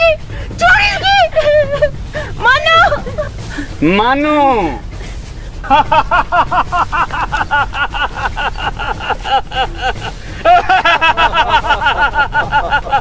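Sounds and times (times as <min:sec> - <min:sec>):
person laughing loudly: 0:05.6 - 0:13.0.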